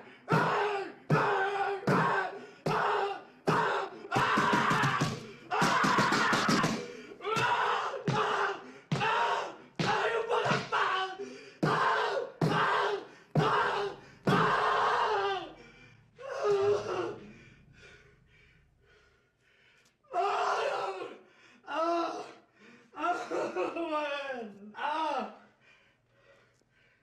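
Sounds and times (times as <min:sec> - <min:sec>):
man sobbing and groaning: 0:20.2 - 0:25.4.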